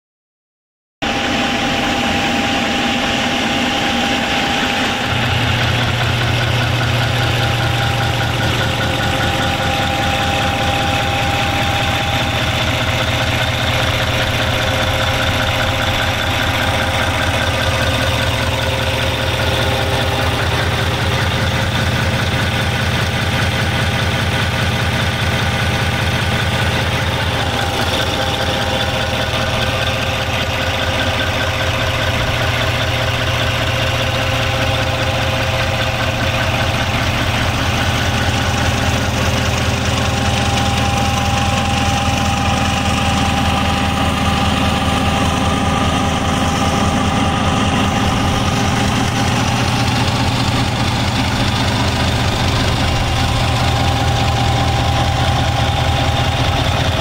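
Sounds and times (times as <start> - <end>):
marine diesel engine idling: 1.0 - 57.0.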